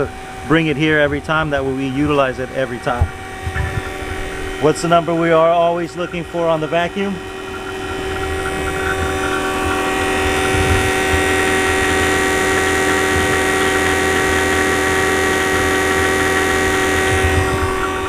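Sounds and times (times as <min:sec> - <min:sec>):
vacuum pump motor hum: 0:00.0 - 0:18.0.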